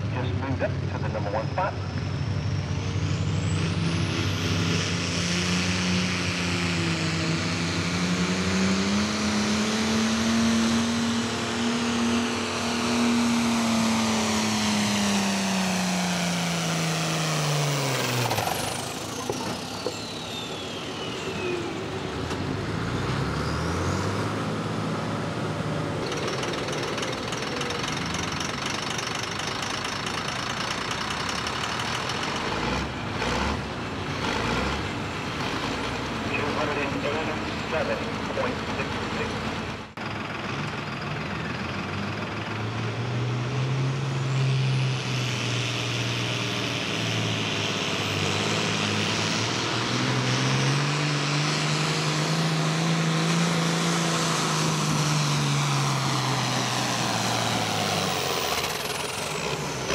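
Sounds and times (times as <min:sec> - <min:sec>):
diesel tractor engine under load: 0:00.0 - 0:59.9
high turbo whine: 0:00.0 - 0:59.9.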